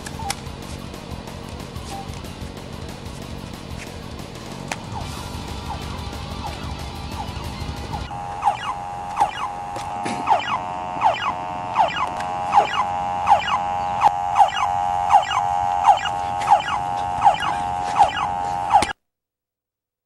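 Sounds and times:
electronic alarm tone with falling sweep: 4.9 - 19.0.

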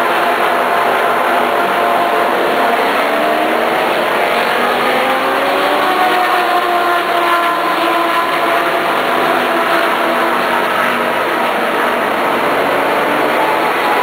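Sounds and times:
race car engines: 0.0 - 14.0.

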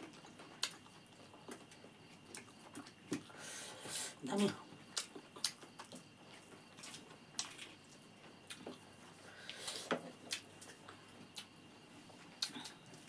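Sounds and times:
wet chewing and mouth smacks: 0.6 - 3.3, 4.9 - 8.8.

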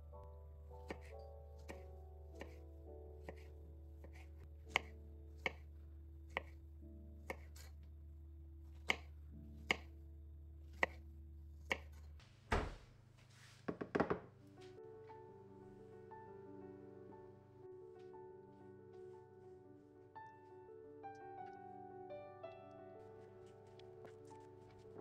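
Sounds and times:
dull thump: 12.5 - 12.9.

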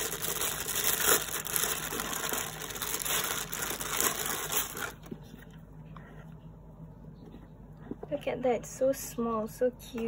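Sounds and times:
plastic bag crinkling: 0.0 - 5.3.

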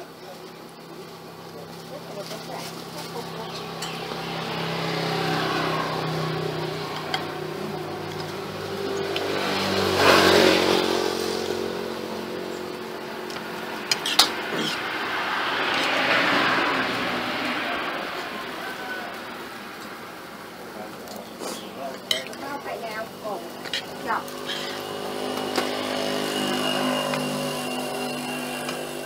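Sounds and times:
motor vehicles passing: 0.0 - 29.0
cutlery clinking on a plate: 3.8 - 4.0, 21.4 - 22.4.

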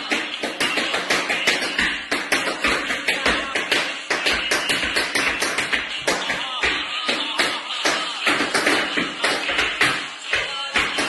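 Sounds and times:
tap shoes on wooden floor: 0.0 - 11.0.

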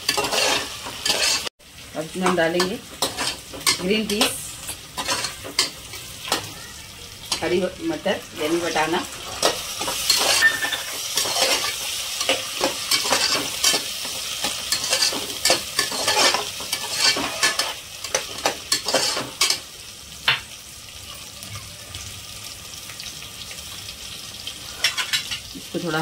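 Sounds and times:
spoon scraping and clinking on pot: 0.0 - 1.5, 3.0 - 4.3, 5.0 - 6.0, 9.4 - 19.6, 24.8 - 25.4
frying sizzle: 0.0 - 26.0.

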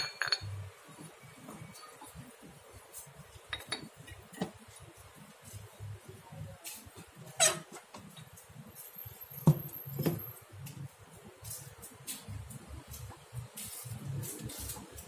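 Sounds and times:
metal clinks and knock: 0.0 - 0.7.

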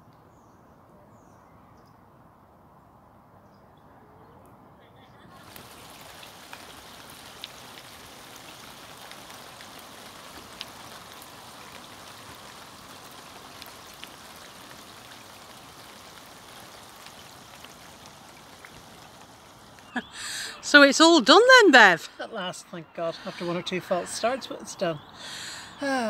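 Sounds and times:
light rain hissing: 5.3 - 26.0
rain drop ticks: 5.4 - 21.6.

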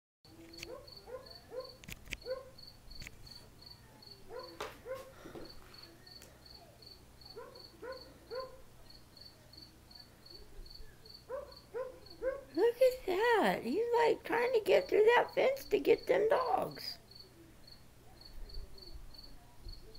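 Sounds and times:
cricket chirping: 0.5 - 4.6, 5.4 - 12.5, 16.6 - 19.9
dogs barking: 0.6 - 2.6, 4.3 - 5.2, 7.3 - 8.7, 11.3 - 12.6.

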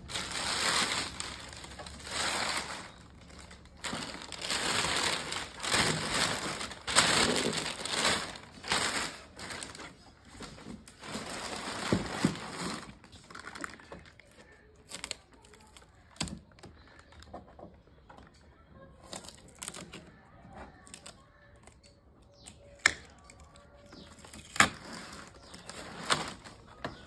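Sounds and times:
plastic sheet crinkling: 0.0 - 17.2, 23.2 - 27.0.

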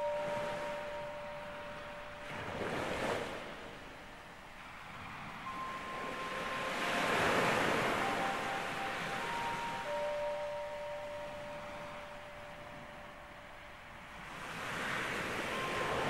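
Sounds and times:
soft held tones: 0.0 - 14.2, 15.0 - 16.0
ocean surf washing onto beach: 0.0 - 16.0.

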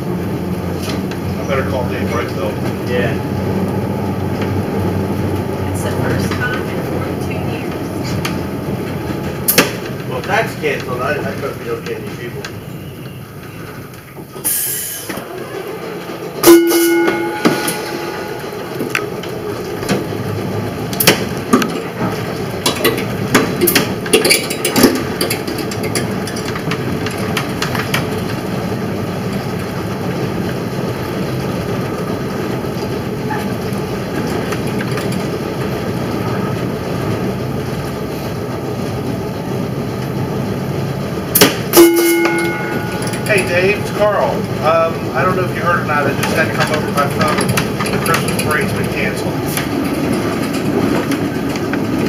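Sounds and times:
streetcar rumbling on track: 0.0 - 52.0
streetcar gong ringing: 12.5 - 38.8, 40.4 - 52.0.

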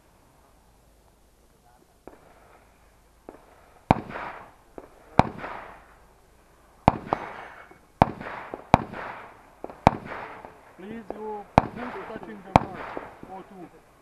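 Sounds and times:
rifle shots with echo: 2.0 - 2.6, 3.2 - 6.2, 6.8 - 13.7.

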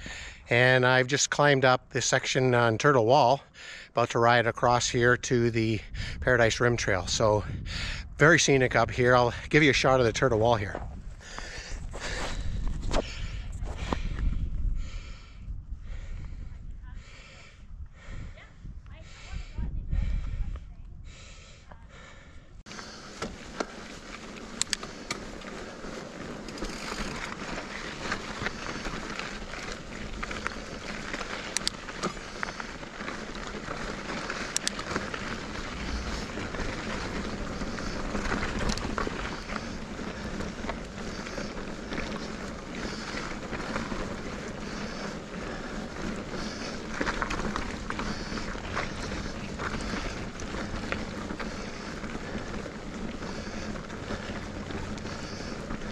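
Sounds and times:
bike tyres rolling on dirt: 0.0 - 55.9
bike rattles and clicks: 4.6 - 55.9
wind on microphone: 5.5 - 22.7.

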